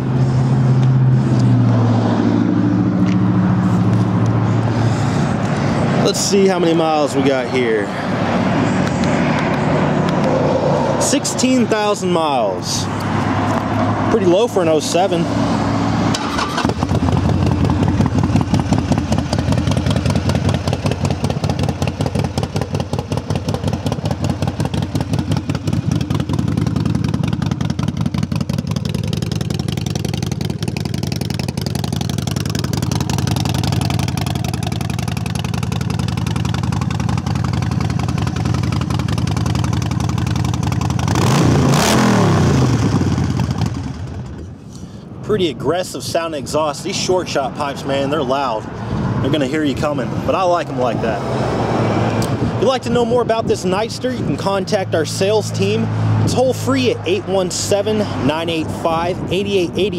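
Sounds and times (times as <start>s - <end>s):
motorcycle engine idling loud: 16.6s - 41.4s, 42.4s - 44.4s.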